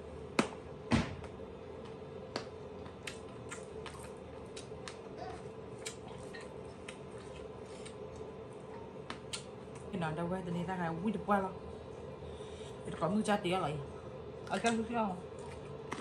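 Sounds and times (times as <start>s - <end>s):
faint steady hum: 0.0s - 16.0s
person chewing: 2.9s - 9.9s, 15.4s - 16.0s.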